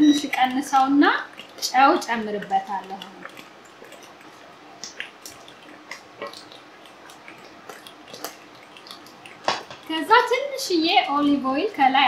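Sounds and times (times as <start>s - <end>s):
stew bubbling in a pot: 0.0s - 12.0s.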